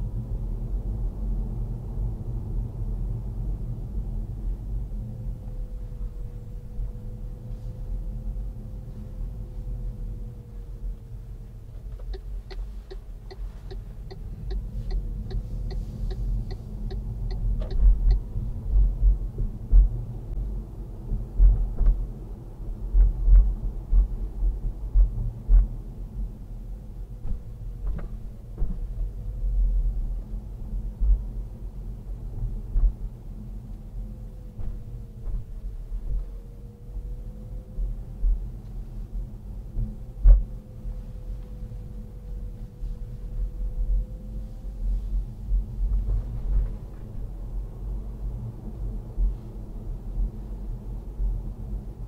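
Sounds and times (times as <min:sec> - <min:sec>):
road and engine rumble: 0:00.0 - 0:52.0
turn signal ticking: 0:11.7 - 0:20.0.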